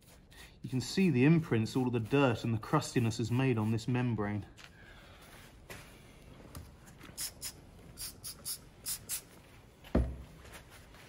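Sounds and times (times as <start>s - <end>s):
cloth scrubbing a part: 0.0s - 4.1s
low thump: 9.9s - 10.3s.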